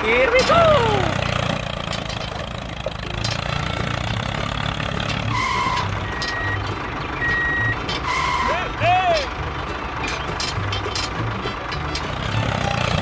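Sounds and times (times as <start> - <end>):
tractor engine running: 0.0 - 13.0
reversing alarm beeps: 5.3 - 8.5.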